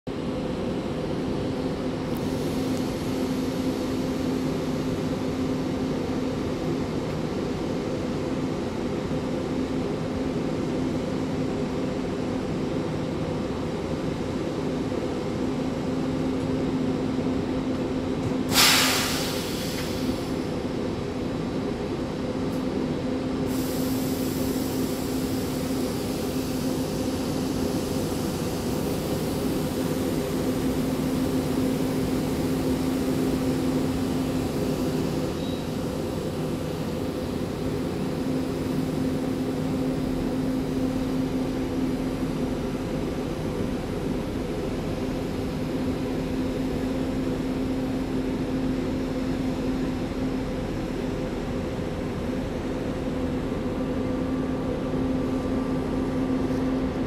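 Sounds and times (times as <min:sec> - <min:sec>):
mechanical drone of trains: 0:00.1 - 0:57.0
loud hiss: 0:18.5 - 0:20.4, 0:23.5 - 0:37.2.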